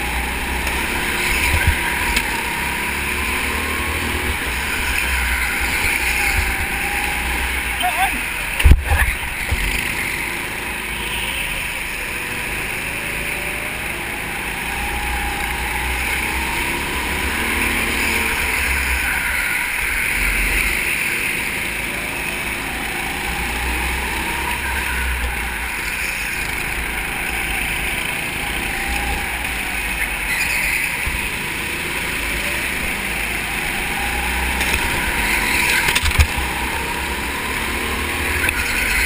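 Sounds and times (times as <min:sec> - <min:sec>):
go-kart engine running: 0:00.0 - 0:39.0.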